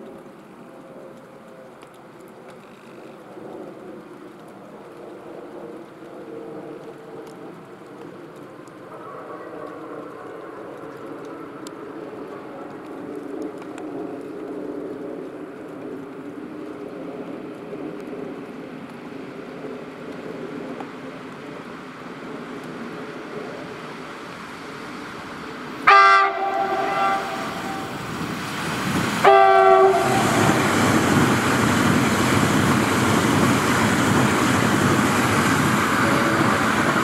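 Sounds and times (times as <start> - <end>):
electric train approaching: 9.3 - 37.0.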